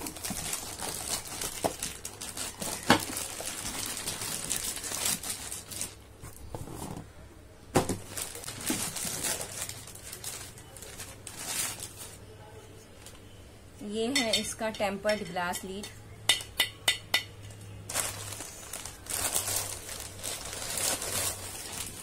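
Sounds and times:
packaging crinkling and rustling: 0.0 - 6.8, 7.8 - 12.3, 17.9 - 22.0.

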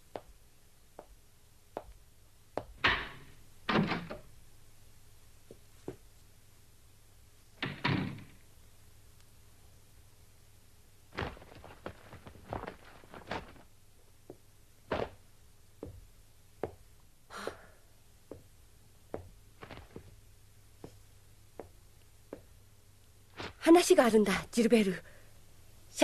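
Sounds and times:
cloth rustling: 11.1 - 13.7, 19.6 - 20.2
cloth swish: 23.4 - 23.6.

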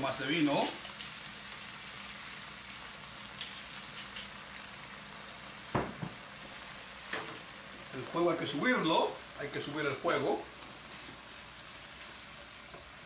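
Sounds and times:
vegetables sizzling in a frying pan: 0.0 - 13.0.

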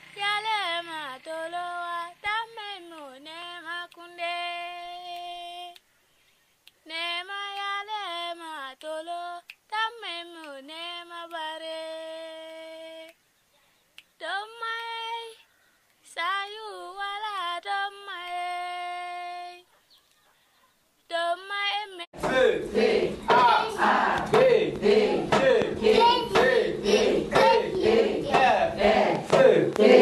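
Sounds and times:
high voice singing: 22.2 - 30.0.

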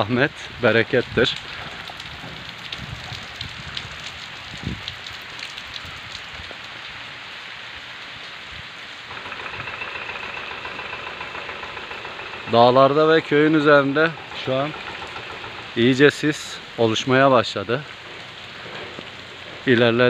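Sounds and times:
steady rain falling: 0.0 - 20.0
single raindrops ticking: 0.9 - 7.0, 9.0 - 16.2.

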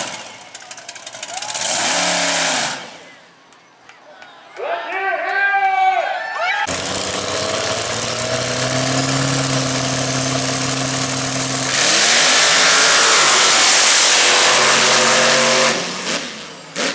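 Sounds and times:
tires spinning in dirt: 0.0 - 3.1, 6.7 - 16.9
truck engines revving: 0.0 - 3.5, 6.6 - 16.9.

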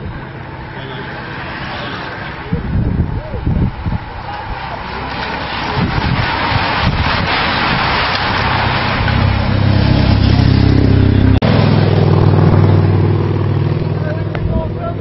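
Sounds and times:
bicycles rushing past: 0.0 - 15.0
van engine humming: 0.0 - 15.0.

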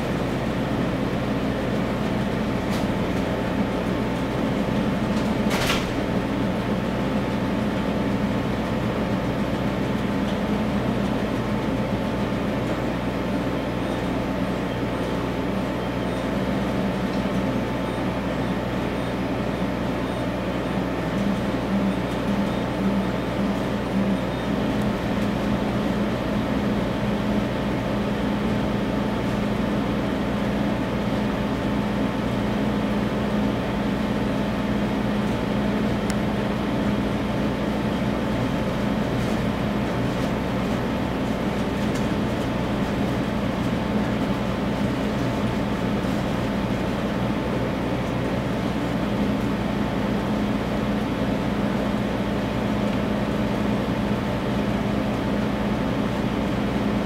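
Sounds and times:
printer mechanical hum: 0.0 - 57.0.

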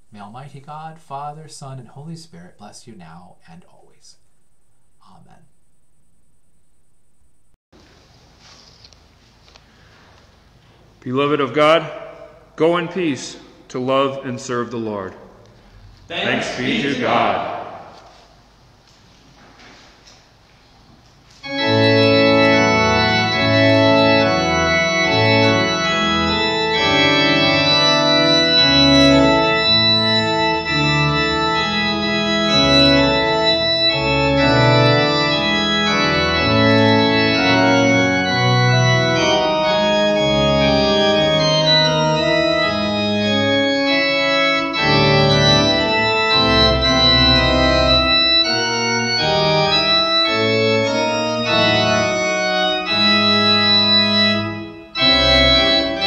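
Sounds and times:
organ playing sustained chords: 0.0 - 6.6, 15.7 - 18.2, 21.3 - 56.0.

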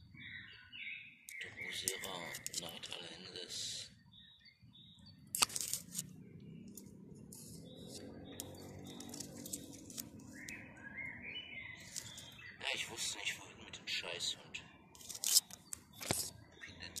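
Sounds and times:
songbirds chirping: 0.0 - 17.0
stepped chirps: 4.4 - 12.6
rustling handling noise: 5.3 - 6.1, 15.0 - 17.0.

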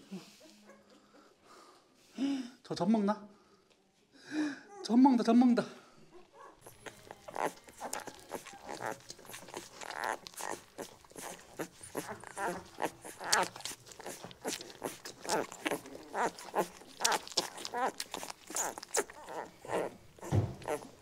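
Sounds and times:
puppies squeaking and whimpering: 6.5 - 21.0
puppies sucking clicks: 6.6 - 21.0.

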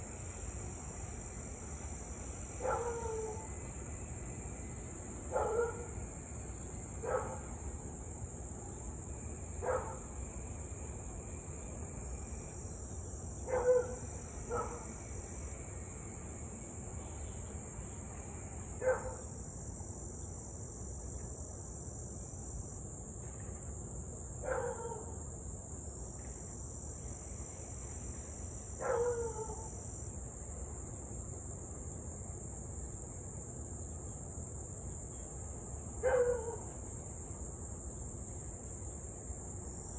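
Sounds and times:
insects chirring: 0.0 - 31.7, 34.1 - 39.9
dog barking: 2.6 - 3.4, 5.3 - 5.9, 7.0 - 7.4, 9.6 - 10.0, 13.5 - 14.9, 18.8 - 19.2, 24.4 - 25.1, 28.8 - 29.6, 36.0 - 36.7.

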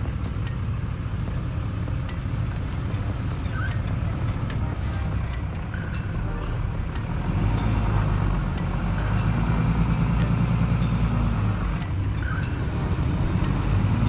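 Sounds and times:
pickup truck engine running: 0.0 - 14.0.

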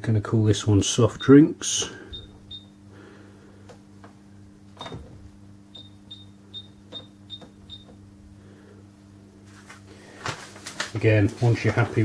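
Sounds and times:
cash register key beeps: 5.8 - 8.0.

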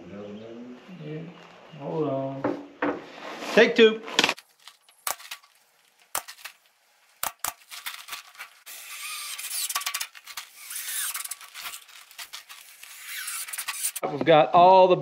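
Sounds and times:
drill whirring into wood: 8.0 - 14.0
nail gun clacks: 8.8 - 14.0.

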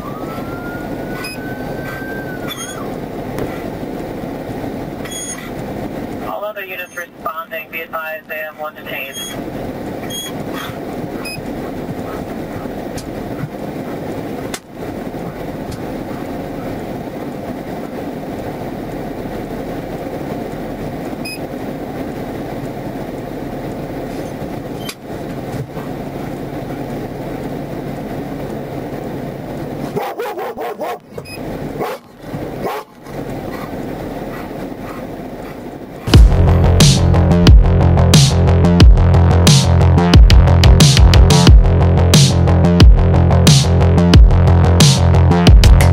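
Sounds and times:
idling vehicles and road traffic: 0.0 - 45.9
loud electronic music: 36.1 - 45.9.

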